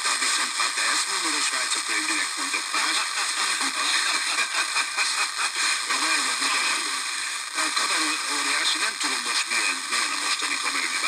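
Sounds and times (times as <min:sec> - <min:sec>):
faint voice talking on radio: 0:00.0 - 0:11.0
radio static hiss: 0:00.0 - 0:11.0.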